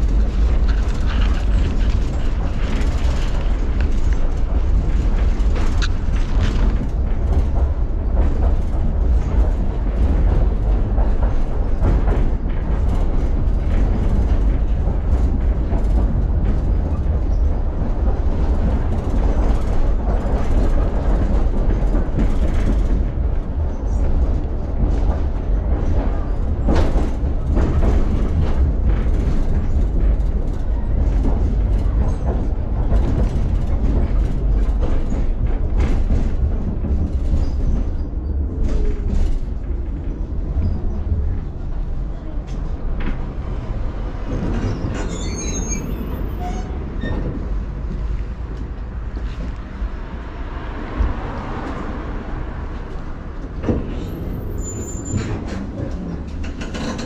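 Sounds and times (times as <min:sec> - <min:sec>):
rail clicks: 0:00.0 - 0:57.0
tram wheels rumbling on rail: 0:00.0 - 0:57.0.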